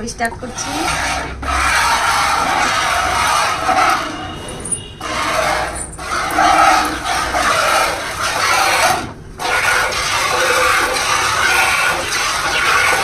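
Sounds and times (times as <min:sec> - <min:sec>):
milk squirting into a bucket: 0:05.0 - 0:13.0.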